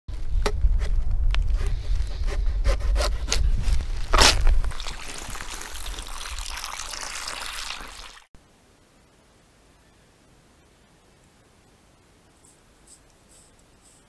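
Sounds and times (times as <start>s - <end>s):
water pouring into a dish: 4.7s - 8.3s.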